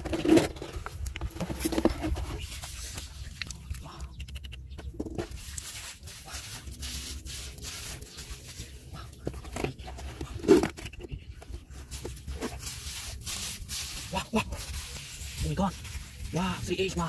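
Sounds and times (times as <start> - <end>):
hands digging in wet sand: 5.2 - 9.2, 11.6 - 17.0.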